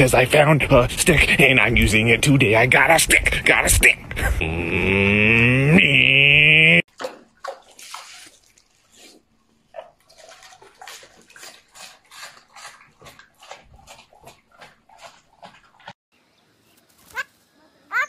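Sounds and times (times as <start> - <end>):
pig chewing: 7.0 - 16.0.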